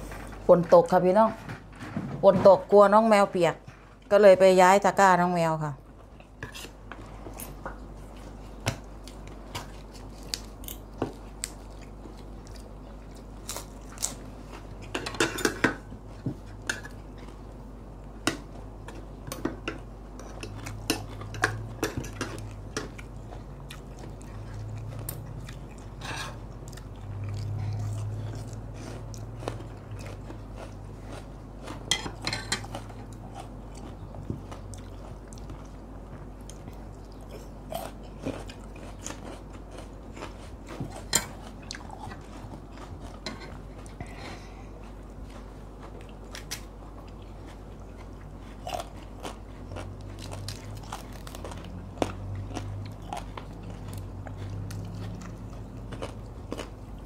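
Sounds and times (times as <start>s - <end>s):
chewing: 6.1s - 15.0s, 19.7s - 57.0s
cutlery clinking on plates: 31.9s - 32.7s.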